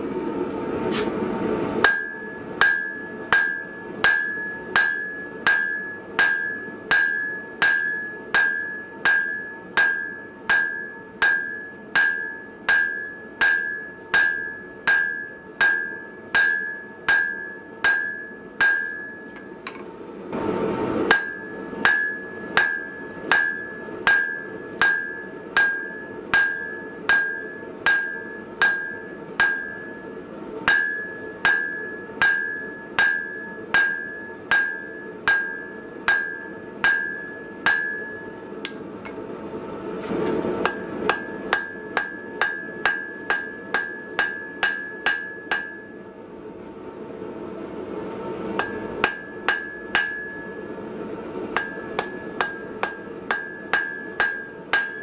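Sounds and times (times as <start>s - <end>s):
hammer blows on hot steel: 1.8s - 19.5s, 21.0s - 39.2s
anvil ringing: 1.8s - 19.7s, 21.1s - 39.2s, 40.6s - 46.0s, 48.6s - 50.7s, 51.6s - 55.0s.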